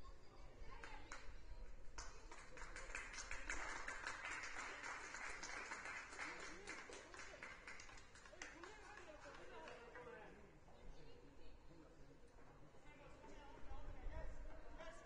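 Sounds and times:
faint distant voices: 0:00.0 - 0:15.0
faint hand clapping: 0:00.7 - 0:10.1.

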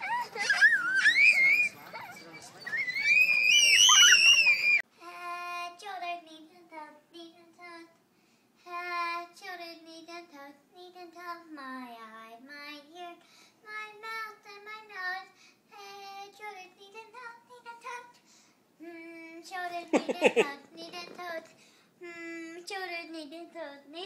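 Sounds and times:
girl singing unaccompanied: 0:04.9 - 0:24.0.

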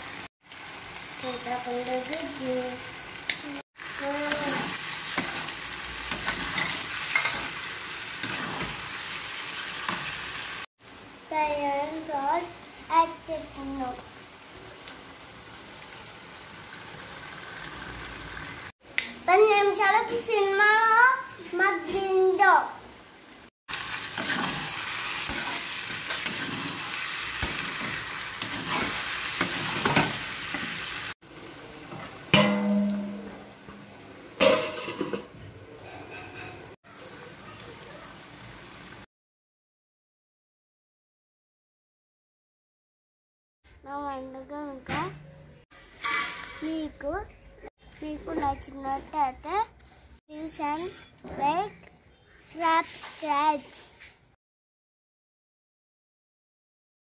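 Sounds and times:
vegetables sizzling in oil: 0:00.0 - 0:18.7, 0:19.3 - 0:35.0, 0:36.9 - 0:39.1, 0:52.5 - 0:54.0
metal spatula scraping pan: 0:08.2 - 0:08.8, 0:24.2 - 0:30.7, 0:45.9 - 0:46.7, 0:50.7 - 0:51.2
metal clang: 0:32.3 - 0:35.3.

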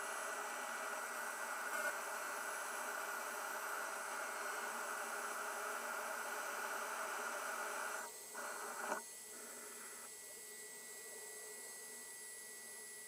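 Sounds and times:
router milling plastic: 0:00.0 - 0:09.0.

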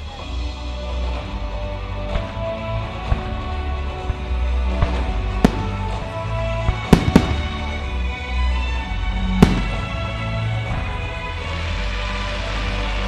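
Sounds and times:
music playing: 0:00.0 - 0:13.0
fireworks bursting with bangs: 0:04.0 - 0:08.1, 0:09.2 - 0:11.0.

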